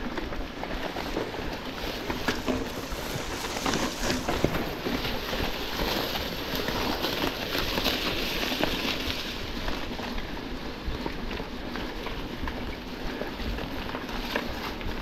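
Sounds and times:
bike clicks and rattles: 0.0 - 15.0
tyres hissing on gravel: 1.7 - 10.0.

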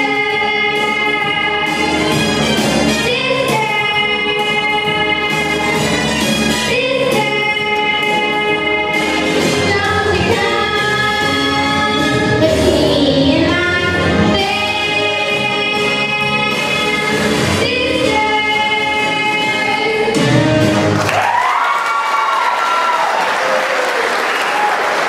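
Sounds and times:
girls singing a duet: 0.0 - 2.2, 2.9 - 5.8, 6.7 - 20.6.

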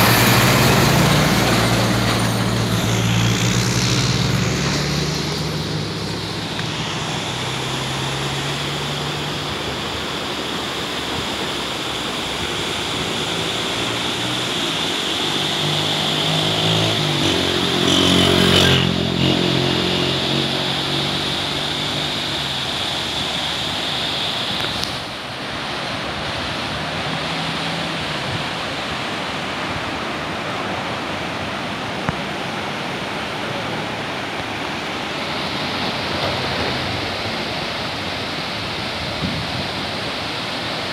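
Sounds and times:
vehicle engine passing: 0.0 - 23.7, 25.0 - 29.6
thin high whine: 0.0 - 24.8
river water roaring: 0.0 - 40.9.

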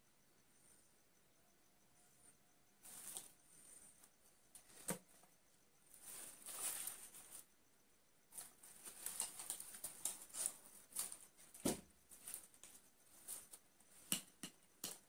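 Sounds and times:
artificial flower stems rustling: 2.8 - 3.7, 5.9 - 7.5, 8.3 - 14.0.

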